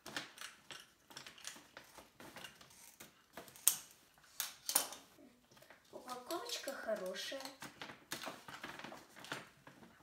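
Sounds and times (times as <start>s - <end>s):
scissors snipping plastic bag: 0.0s - 5.0s.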